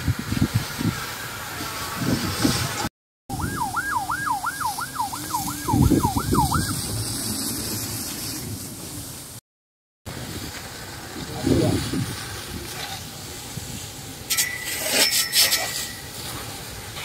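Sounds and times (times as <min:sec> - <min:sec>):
fire hoses spraying hiss: 0:00.0 - 0:02.9, 0:04.7 - 0:09.4, 0:10.1 - 0:17.0
emergency siren yelping: 0:03.3 - 0:06.9.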